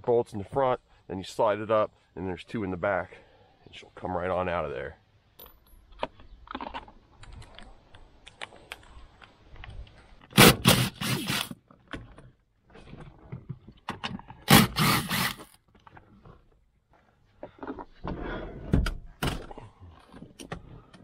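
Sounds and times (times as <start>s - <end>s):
cordless driver spinning bolts: 10.4s - 11.6s, 14.5s - 15.5s.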